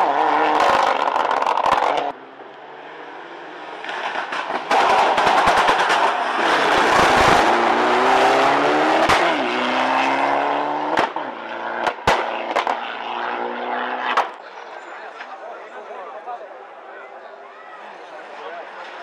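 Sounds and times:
race car engine at full throttle: 0.0s - 14.4s.

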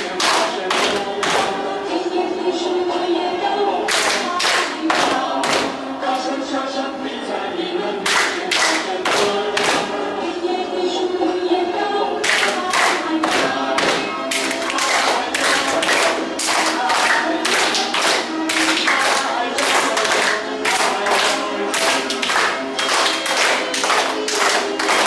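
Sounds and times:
quick hand claps: 0.0s - 1.6s, 3.9s - 5.7s, 8.1s - 9.9s, 12.2s - 25.0s
group singing: 0.0s - 25.0s.

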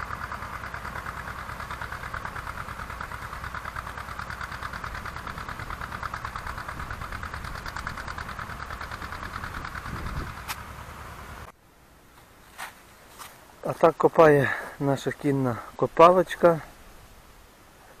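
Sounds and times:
tractor engine running under load: 0.0s - 11.5s.

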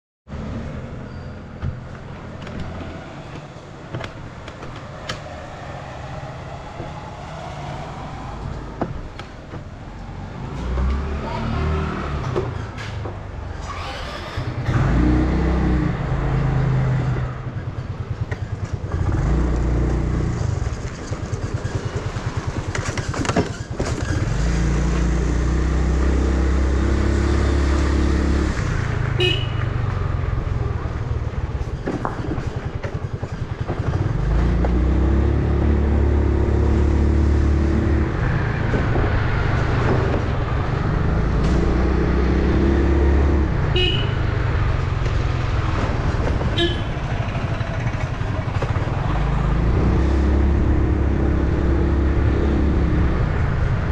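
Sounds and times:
motorcycle engine revving: 13.4s - 31.8s, 32.4s - 53.9s.

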